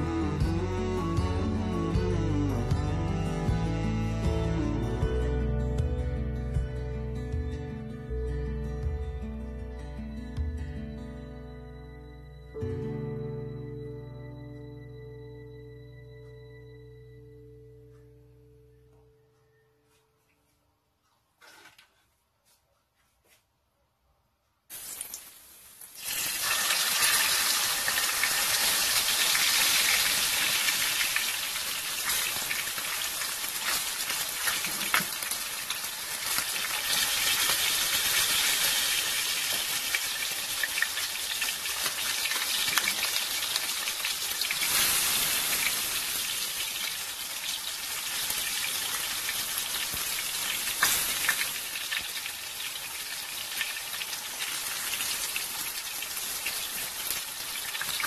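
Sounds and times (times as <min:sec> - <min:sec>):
fish sizzling in hot oil: 0:24.7 - 0:58.0.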